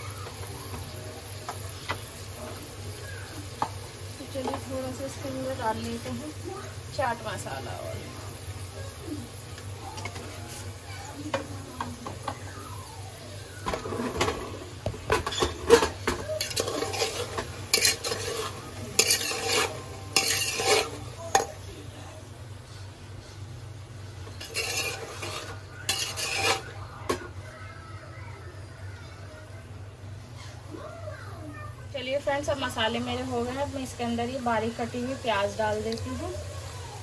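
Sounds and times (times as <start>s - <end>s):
spoon scraping metal pot: 15.2s - 21.5s, 24.3s - 26.7s.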